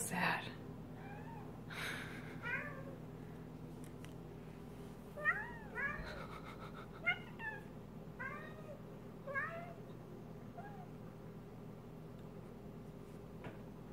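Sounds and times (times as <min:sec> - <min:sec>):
cat chirping and chattering: 0:05.2 - 0:09.9.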